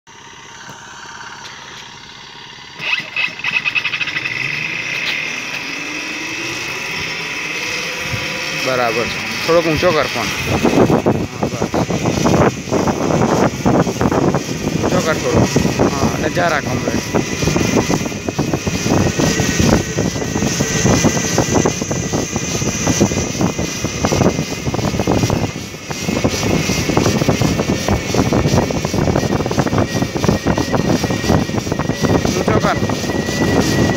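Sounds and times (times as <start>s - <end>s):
high electric motor whine: 0.1s - 33.9s
road and wind noise: 0.1s - 33.9s.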